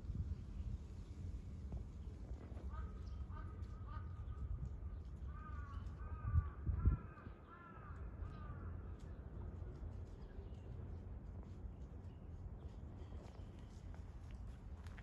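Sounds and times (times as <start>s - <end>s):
crow cawing: 5.3s - 8.5s.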